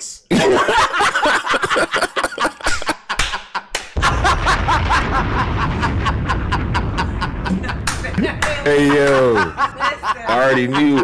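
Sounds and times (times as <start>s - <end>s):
people laughing: 0.3s - 11.0s.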